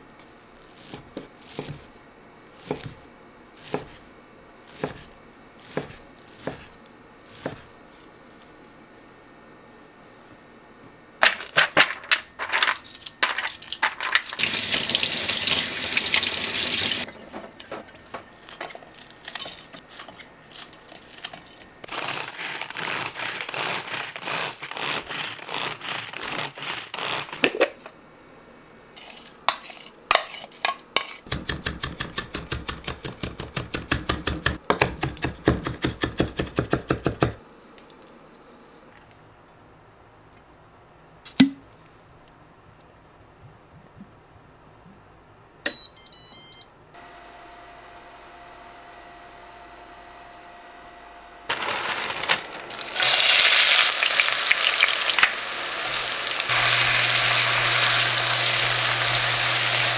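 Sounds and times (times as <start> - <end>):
manual food chopper strokes: 0.6 - 1.9, 21.8 - 27.8, 29.0 - 34.6, 51.5 - 59.9.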